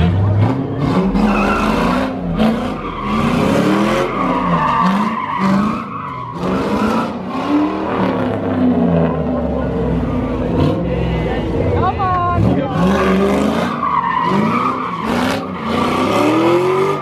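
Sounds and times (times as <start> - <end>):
car engine revving: 0.0 - 17.0
tyres squealing: 0.4 - 7.5, 12.7 - 17.0.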